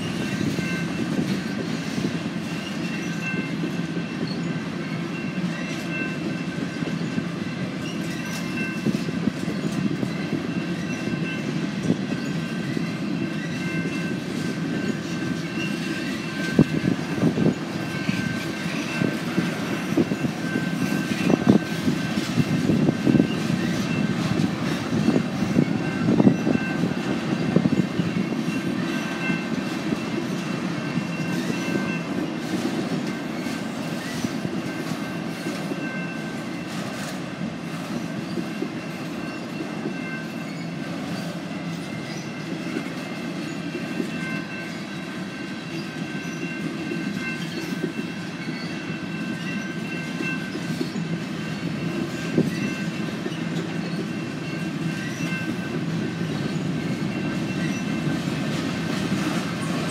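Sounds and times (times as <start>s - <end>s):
freight train rumbling past: 0.0s - 59.9s
high ringing tones: 10.0s - 32.4s.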